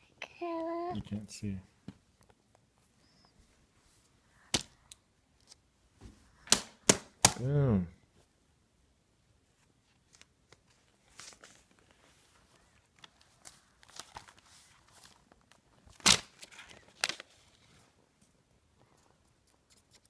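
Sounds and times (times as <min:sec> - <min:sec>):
notebook pages rustling: 0:09.5 - 0:18.0.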